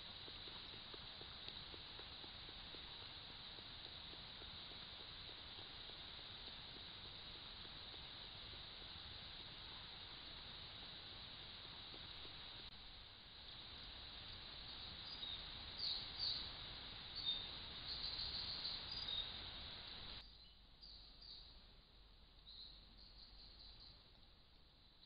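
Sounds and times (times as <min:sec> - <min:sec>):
microphone hiss: 0:00.0 - 0:25.0
birds chirping: 0:14.7 - 0:21.5.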